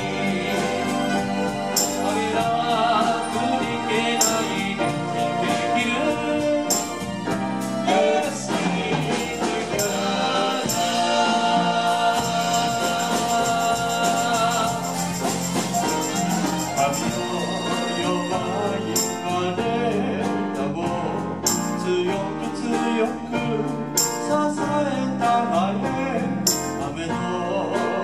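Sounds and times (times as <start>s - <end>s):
voices singing together: 0.0s - 21.2s
drum kit: 0.0s - 28.0s
electric keyboards: 0.0s - 28.0s.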